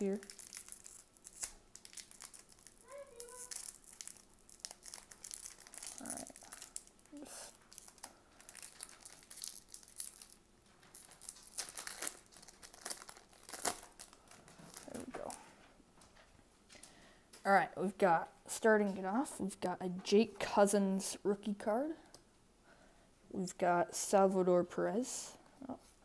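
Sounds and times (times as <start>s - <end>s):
foil wrapper crinkling and tearing: 0.0s - 15.4s.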